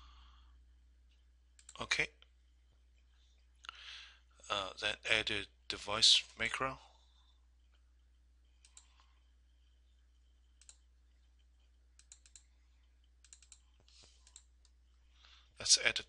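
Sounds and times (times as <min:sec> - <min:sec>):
low steady hum: 0:00.0 - 0:16.0
computer mouse clicks: 0:01.6 - 0:01.8, 0:08.6 - 0:09.1, 0:10.5 - 0:14.8.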